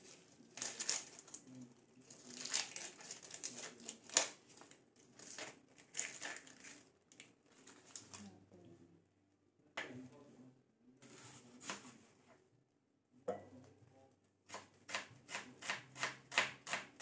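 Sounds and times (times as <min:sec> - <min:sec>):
onion skin crackling and rustling: 0:00.0 - 0:08.3.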